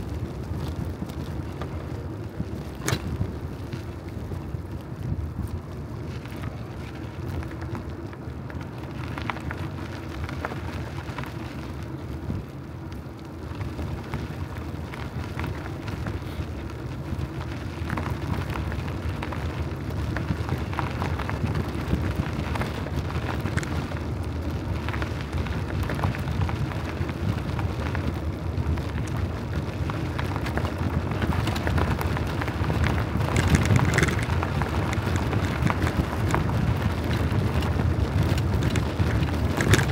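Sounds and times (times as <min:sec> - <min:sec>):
bicycle tyre rumble: 0:00.0 - 0:39.9
crackling rattle: 0:00.0 - 0:39.9
wind on microphone: 0:28.6 - 0:39.9.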